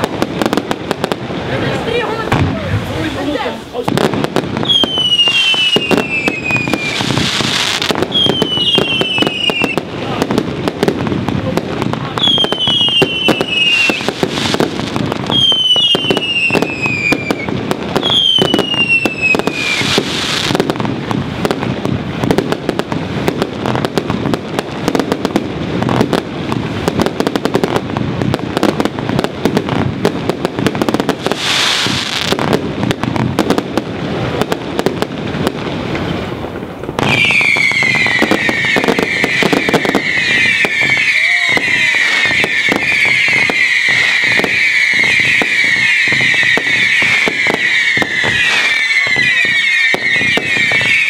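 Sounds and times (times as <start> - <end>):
fireworks banging and crackling: 0.0 - 51.0
fireworks whistles: 2.0 - 10.3, 12.1 - 22.6, 30.8 - 32.6, 35.9 - 51.0.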